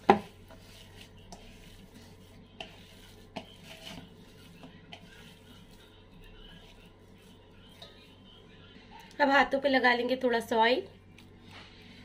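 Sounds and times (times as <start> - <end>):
hand squishing meat mixture: 0.0 - 8.3.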